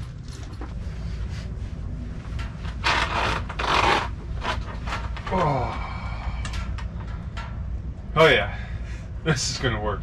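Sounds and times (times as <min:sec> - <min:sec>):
steady low rumble: 0:00.0 - 0:10.0
fabric rustling and scraping: 0:00.4 - 0:05.2.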